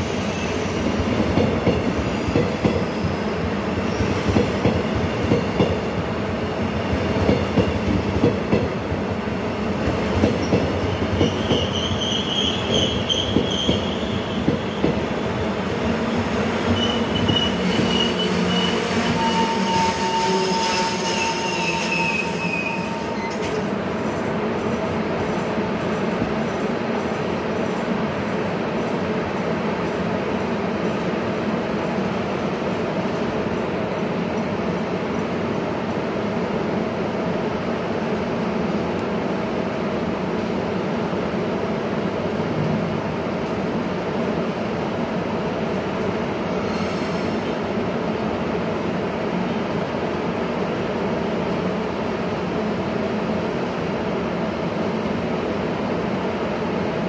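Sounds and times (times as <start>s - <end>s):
high-pitched wheel squeals: 16.7s - 23.6s.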